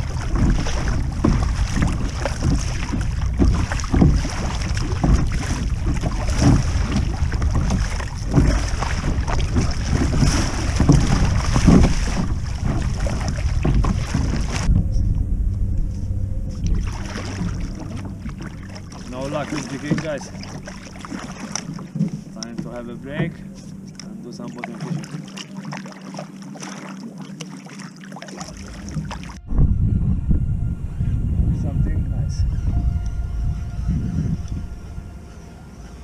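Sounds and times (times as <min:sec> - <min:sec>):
paddle strokes splashing water: 0:00.0 - 0:14.8, 0:16.5 - 0:29.4
wind rumbling on microphone: 0:00.0 - 0:24.4, 0:28.5 - 0:36.0.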